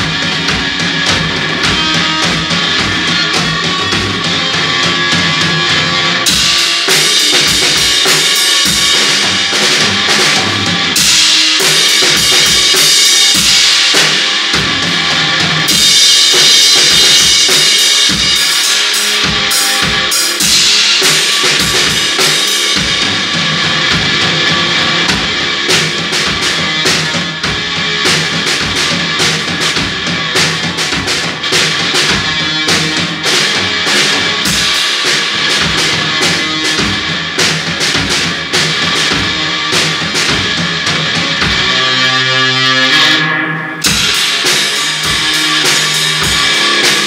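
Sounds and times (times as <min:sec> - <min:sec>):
bass guitar: 0:00.0 - 0:47.0
distorted electric guitar: 0:00.0 - 0:47.0
drum kit pounding: 0:00.0 - 0:47.0
cymbal wash: 0:42.8 - 0:47.0.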